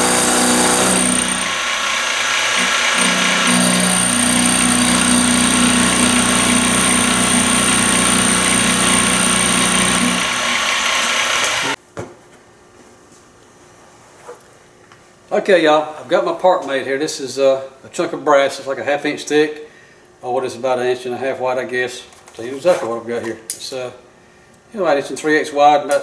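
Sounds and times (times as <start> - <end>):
milling machine cutting metal: 0.0 - 11.8.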